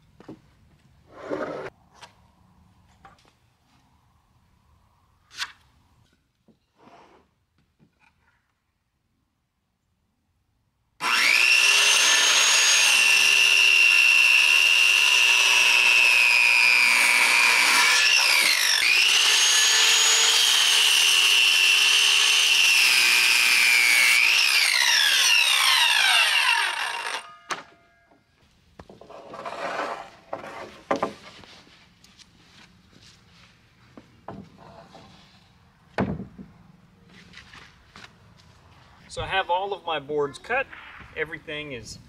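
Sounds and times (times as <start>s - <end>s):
board scraping on stack: 1.1s - 1.7s, 28.9s - 31.7s
circular saw whining: 11.0s - 28.2s.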